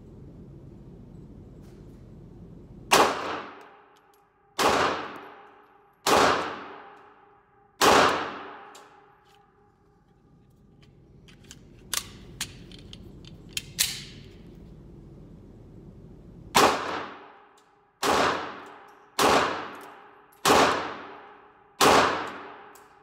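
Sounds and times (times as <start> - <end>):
pistol shots echoing indoors: 2.9 - 10.0, 16.5 - 23.0.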